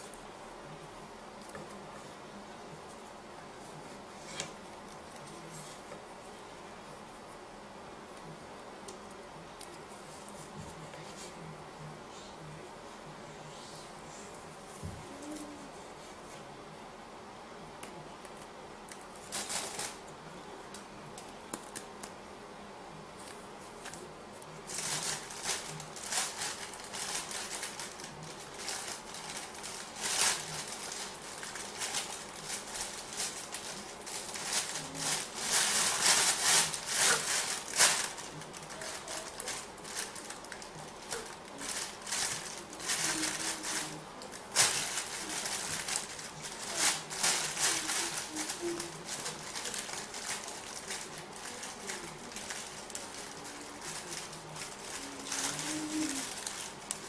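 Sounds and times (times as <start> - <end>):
cord rustling on wood: 24.7 - 57.0.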